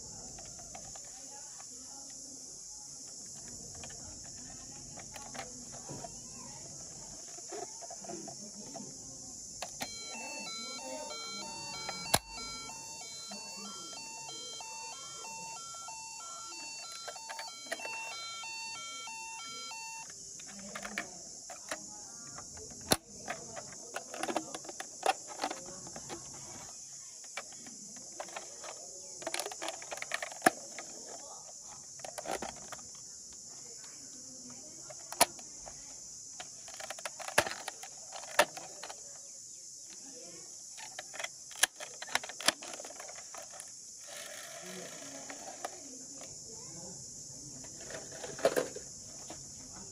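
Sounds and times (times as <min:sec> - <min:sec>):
plastic toys clicking and knocking: 0:00.0 - 0:46.7, 0:47.5 - 0:49.9
electronic beeping tune: 0:09.8 - 0:20.1.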